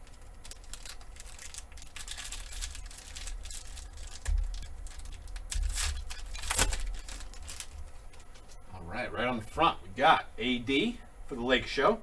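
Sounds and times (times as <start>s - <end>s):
foil wrapper crinkling and tearing: 0.0s - 8.6s.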